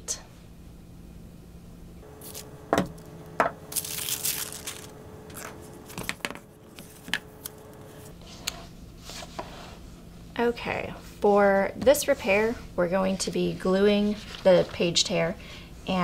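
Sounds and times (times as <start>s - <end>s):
wax paper crinkling: 2.1s - 8.2s
objects knocking on table: 2.7s - 3.6s
book set down and opened: 4.6s - 7.2s.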